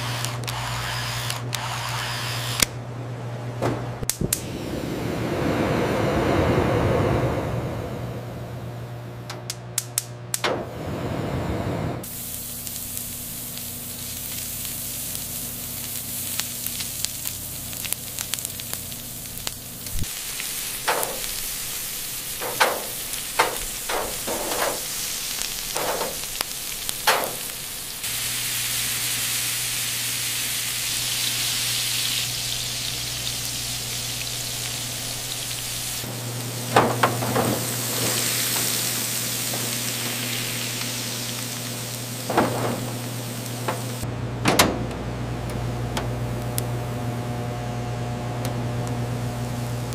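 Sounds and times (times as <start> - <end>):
burgers sizzling on a grill: 12.0 - 44.0, 45.6 - 49.9
fat popping and crackling: 12.3 - 28.0, 36.4 - 46.7.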